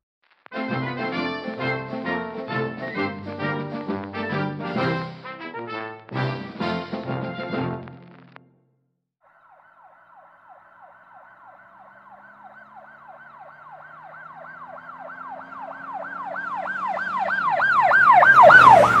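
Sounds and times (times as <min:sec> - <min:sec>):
siren fast repeating wail: 0:09.2 - 0:19.0.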